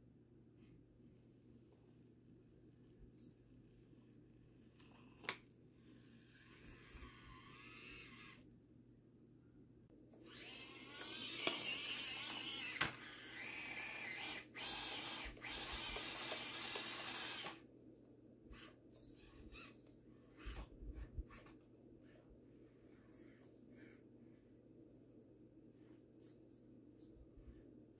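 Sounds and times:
rc car motor whining: 5.9 - 8.4, 10.2 - 17.6, 18.6 - 20.5.

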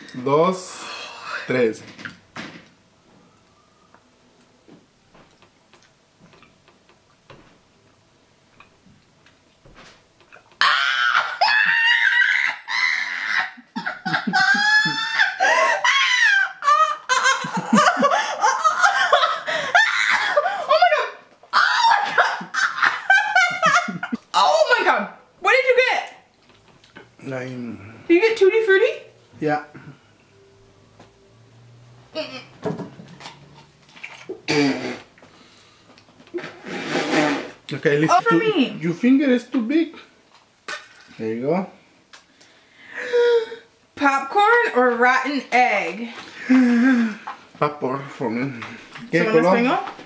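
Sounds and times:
woman shrieking and laughing: 10.6 - 24.2
people laughing: 11.2 - 20.7, 22.0 - 24.2.

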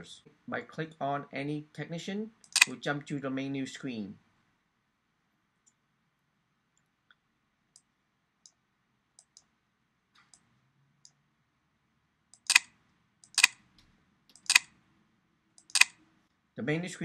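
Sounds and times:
computer mouse clicking: 2.4 - 2.8, 9.2 - 9.5, 12.3 - 13.6, 14.3 - 14.7, 15.6 - 16.0.

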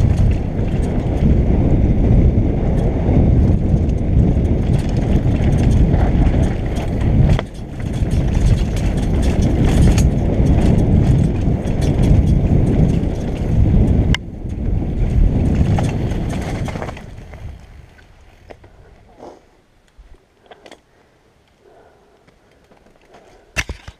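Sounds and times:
bike rattling over bumps: 0.0 - 19.2, 22.6 - 23.9
wind on microphone: 0.0 - 20.2
tyres on dirt: 0.0 - 21.0, 22.2 - 23.9.

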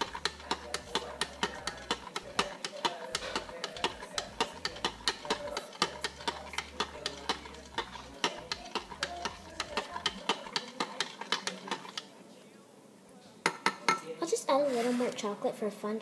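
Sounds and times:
metal spoon clinking against glass: 0.0 - 12.1.

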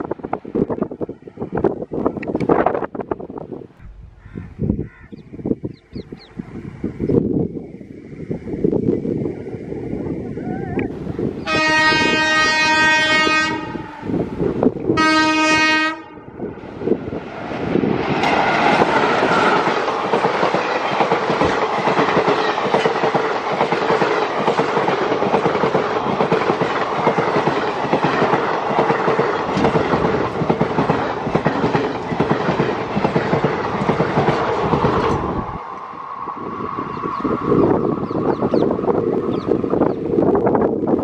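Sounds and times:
train coaches rumbling past: 5.4 - 41.0
locomotive horn: 11.4 - 14.2, 14.9 - 16.5
wheels clacking over rail joints: 17.2 - 35.9.

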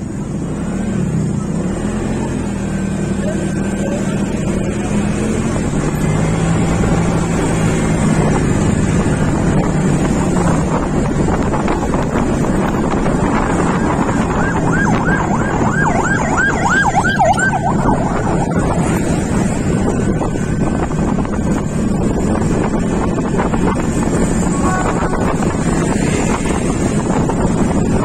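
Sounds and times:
road noise: 0.0 - 28.0
wind on microphone: 5.0 - 28.0
siren wailing: 13.4 - 19.5.

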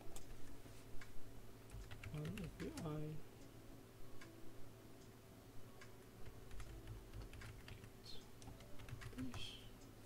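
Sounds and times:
faint computer keyboard typing: 1.6 - 3.2, 6.2 - 9.7.

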